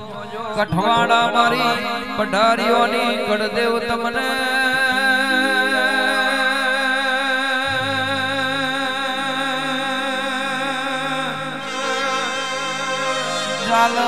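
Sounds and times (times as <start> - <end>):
man singing long wavering note: 4.7 - 14.0
steady musical drone: 5.5 - 14.0.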